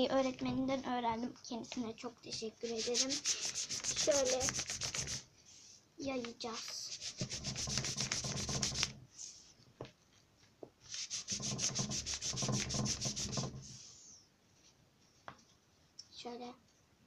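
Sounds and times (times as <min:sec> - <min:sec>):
paper napkin scraping on paper: 0:02.6 - 0:05.2, 0:06.5 - 0:09.0, 0:10.9 - 0:13.8.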